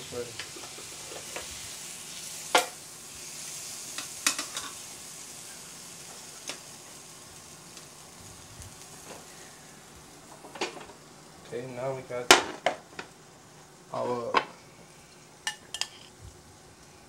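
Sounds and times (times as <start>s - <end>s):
steak sizzling on a grill: 0.0s - 17.0s
metal tongs clacking: 15.5s - 16.1s.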